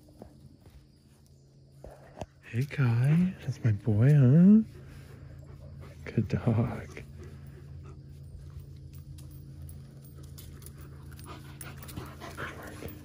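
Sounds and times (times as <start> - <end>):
dog panting: 4.6 - 13.0.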